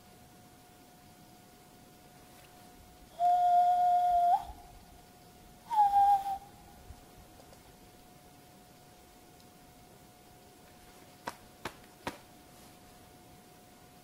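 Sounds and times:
man whistling through cupped hands: 0:03.1 - 0:04.6, 0:05.7 - 0:06.6.

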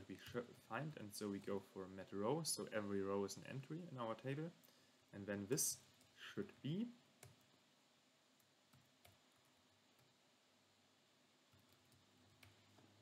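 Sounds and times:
faint keyboard typing clicks: 0:07.2 - 0:07.5, 0:08.4 - 0:10.2, 0:11.5 - 0:13.0.

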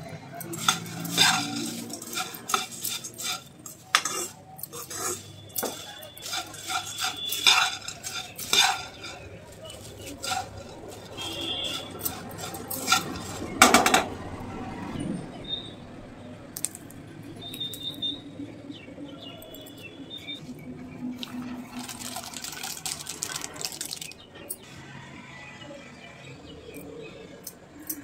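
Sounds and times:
puffed rice rustling: 0:00.0 - 0:13.7, 0:21.1 - 0:24.2
metal spoon scraping in pan: 0:00.0 - 0:14.2.

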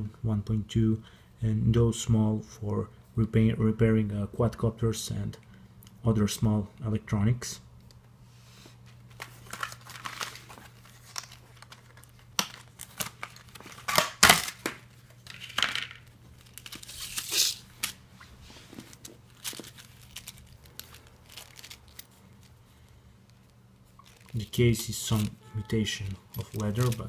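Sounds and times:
plastic packaging crackling: 0:09.1 - 0:18.0, 0:18.7 - 0:25.4, 0:26.0 - 0:27.0.

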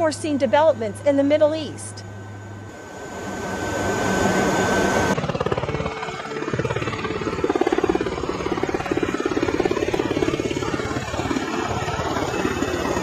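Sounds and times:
turboprop engines droning: 0:00.0 - 0:13.0
tiltrotors beating: 0:05.2 - 0:13.0.

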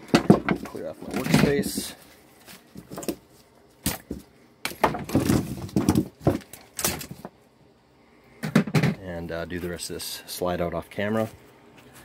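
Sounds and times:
tools knocking and clattering: 0:00.0 - 0:01.9, 0:08.4 - 0:09.0.

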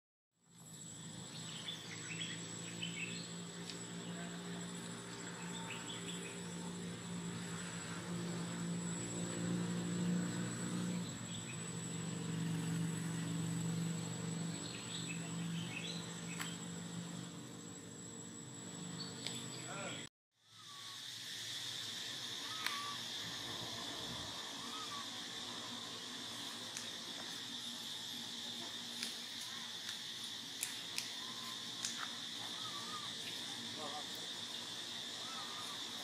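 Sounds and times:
high-pitched insect whine: 0:00.4 - 0:36.0
low motor-like hum: 0:00.5 - 0:36.0
bird chirps: 0:01.2 - 0:04.4, 0:05.1 - 0:06.7, 0:10.8 - 0:12.0, 0:14.0 - 0:16.8, 0:18.8 - 0:20.0.

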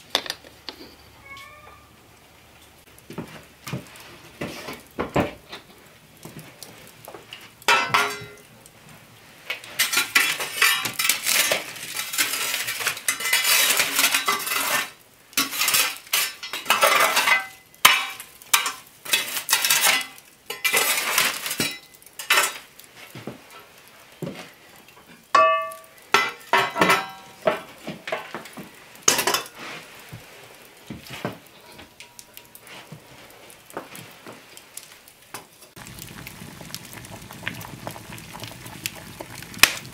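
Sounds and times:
iron cookware clanking: 0:07.7 - 0:08.5, 0:25.4 - 0:27.6
iron tool raking coals on stone: 0:09.5 - 0:22.9, 0:35.6 - 0:39.9
ringing metal clang: 0:25.4 - 0:25.9.

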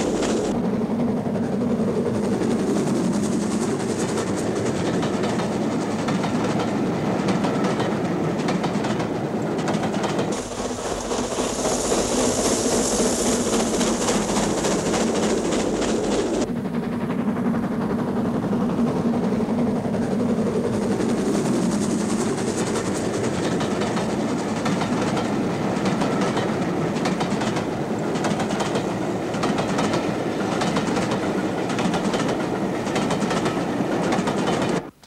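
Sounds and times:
steam train rumbling: 0:00.0 - 0:35.0
wheels clicking over rail joints: 0:23.1 - 0:35.0.

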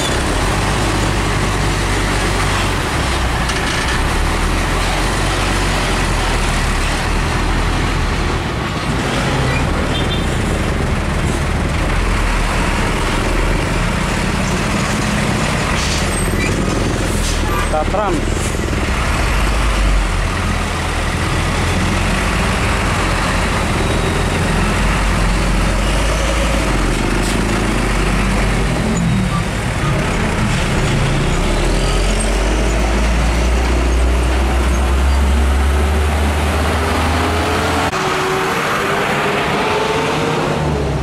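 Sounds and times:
diesel truck engine rumbling: 0:00.0 - 0:41.0
roadside traffic: 0:00.0 - 0:41.0
engine speeding up: 0:29.6 - 0:41.0.

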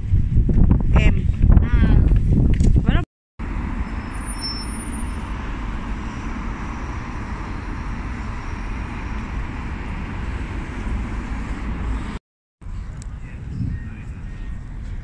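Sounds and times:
city road traffic hum: 0:03.4 - 0:15.0.

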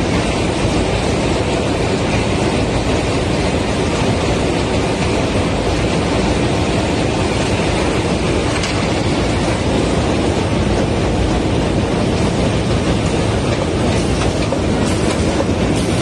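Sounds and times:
conveyor machinery running: 0:00.0 - 0:16.0.

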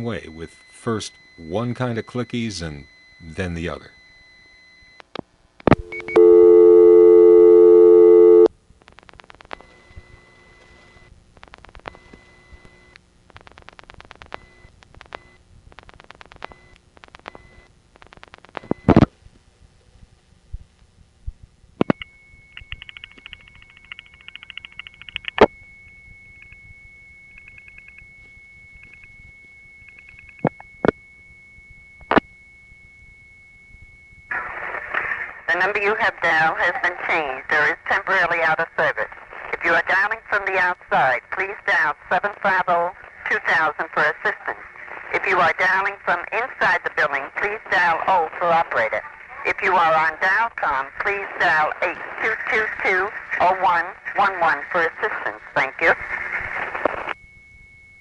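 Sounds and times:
buzzy telephone tone: 0:00.0 - 0:05.0, 0:05.7 - 0:08.5, 0:09.6 - 0:11.2, 0:11.8 - 0:13.0, 0:14.2 - 0:15.5, 0:16.4 - 0:17.7, 0:21.8 - 0:39.0, 0:45.4 - 0:58.0
recorded intercept message: 0:05.8 - 0:08.5, 0:35.4 - 0:56.0
rapid switching clicks: 0:22.6 - 0:25.4.

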